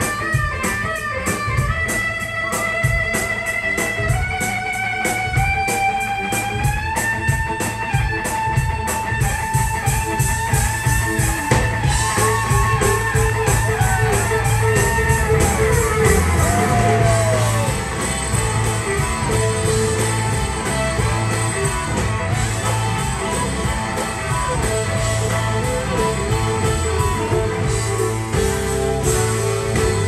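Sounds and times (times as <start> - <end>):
blues-rock band playing: 0.0 - 30.0
electric guitar bent notes: 0.0 - 30.0
fiddle: 0.0 - 30.0.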